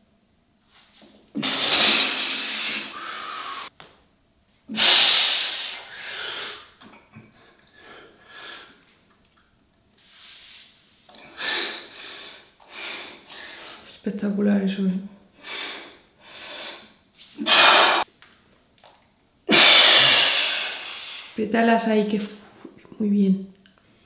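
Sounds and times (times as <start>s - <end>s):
man blowing out forceful breaths: 1.4s - 3.7s, 17.4s - 18.0s
man breathing quietly: 2.5s - 3.7s.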